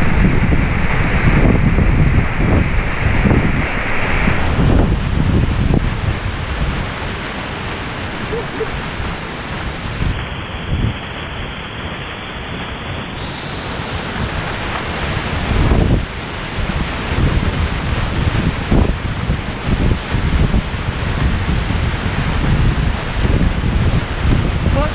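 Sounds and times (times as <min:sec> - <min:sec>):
wind buffeting microphone: 0:00.0 - 0:24.9
waterfall rushing: 0:04.3 - 0:21.6.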